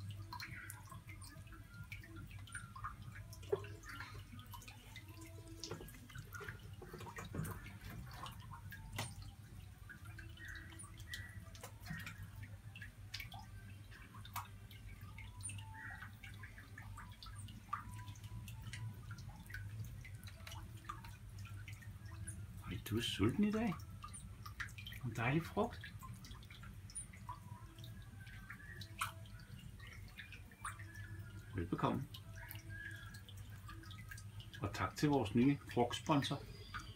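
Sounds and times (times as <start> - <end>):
water drips: 0.0 - 36.9.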